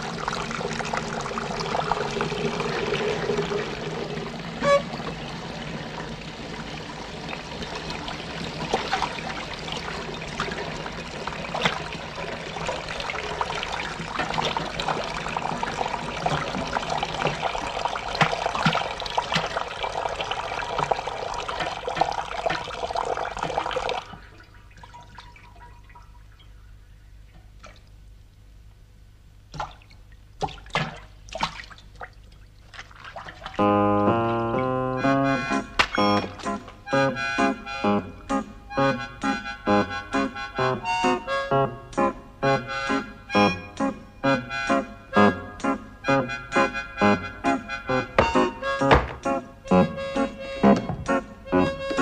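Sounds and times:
water dripping into metal pails: 0:00.0 - 0:28.0, 0:29.5 - 0:33.7, 0:35.7 - 0:36.8.

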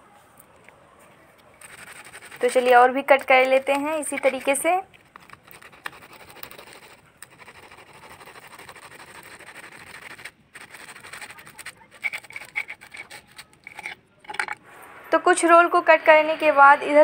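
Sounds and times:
knife sawing through crisp crust: 0:01.6 - 0:02.8, 0:05.2 - 0:14.0
knife scraping metal plate: 0:01.6 - 0:14.6.

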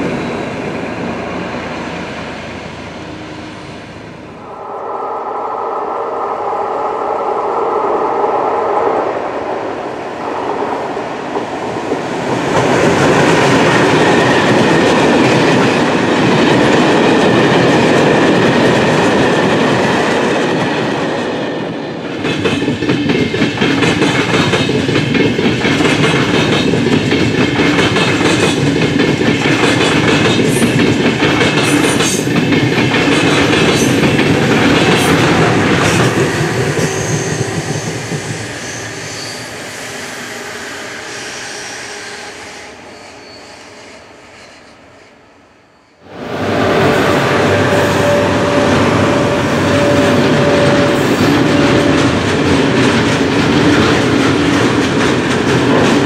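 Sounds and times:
freight train rumbling: 0:00.0 - 0:45.0, 0:46.0 - 0:56.0
train wheels clacking over rail joints: 0:22.1 - 0:39.0, 0:47.2 - 0:56.0
humming tone: 0:46.4 - 0:51.7.

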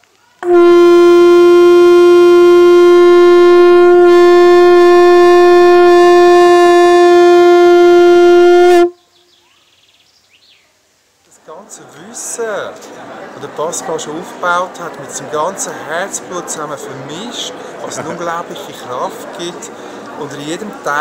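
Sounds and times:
horn blowing long note: 0:00.4 - 0:09.0.

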